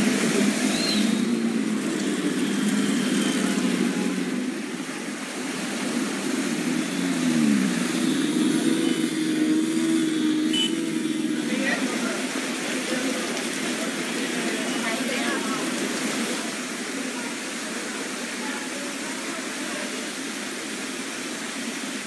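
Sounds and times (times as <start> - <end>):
vehicle engines running: 0.0 - 16.4
water washing: 0.0 - 22.0.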